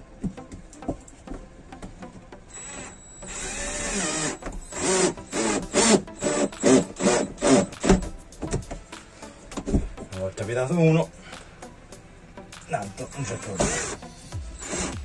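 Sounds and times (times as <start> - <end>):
cordless drill driving screw: 2.6 - 8.1, 13.2 - 14.0, 14.6 - 15.0.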